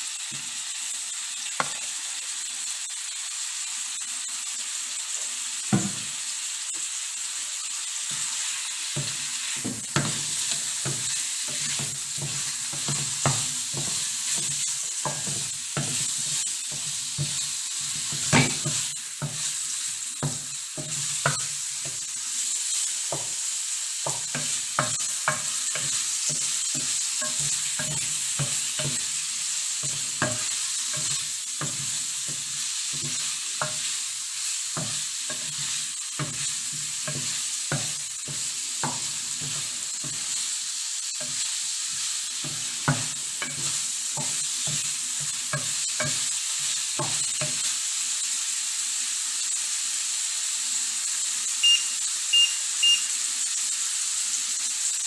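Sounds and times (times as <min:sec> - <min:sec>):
food sizzling in a frying pan: 0:00.0 - 0:55.0
utensil knocking against pan: 0:09.0 - 0:16.0, 0:18.1 - 0:19.4, 0:36.2 - 0:40.2.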